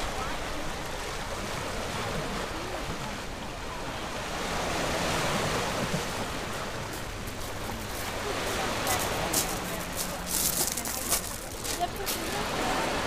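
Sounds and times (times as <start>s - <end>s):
waves lapping on pebbles: 4.0s - 13.0s.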